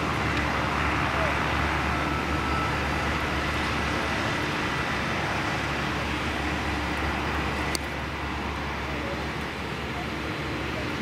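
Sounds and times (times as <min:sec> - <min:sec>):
airport background noise: 0:00.0 - 0:11.0
light aircraft engine drone: 0:00.0 - 0:11.0
faint high whine: 0:00.4 - 0:04.8.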